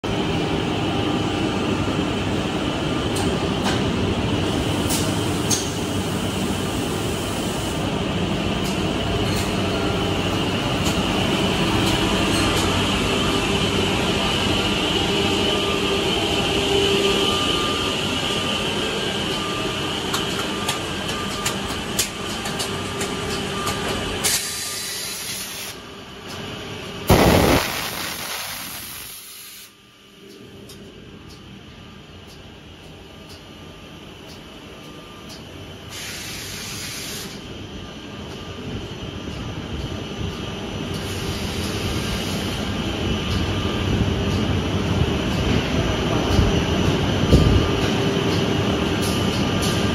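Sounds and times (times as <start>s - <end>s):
machine rumble and hiss: 0.0s - 49.9s.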